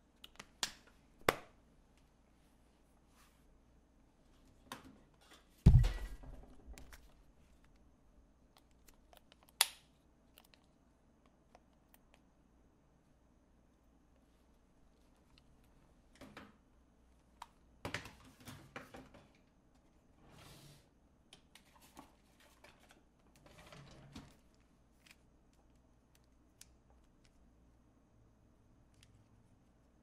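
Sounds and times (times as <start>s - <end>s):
puzzle cube turning clicks: 8.5s - 10.7s.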